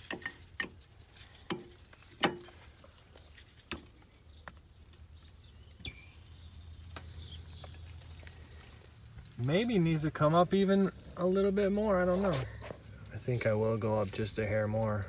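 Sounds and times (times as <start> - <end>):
steel jack clicks and knocks: 1.5 - 2.6.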